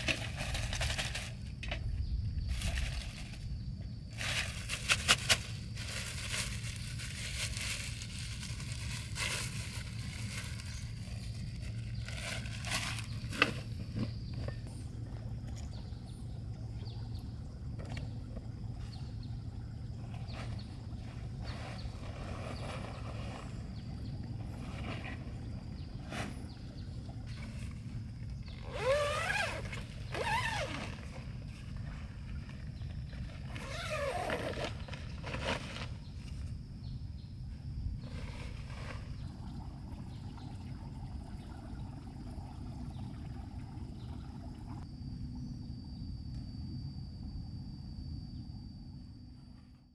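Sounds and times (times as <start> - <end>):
high insect trill: 0.0 - 42.1, 43.7 - 49.9
steady low rumble: 1.2 - 28.6.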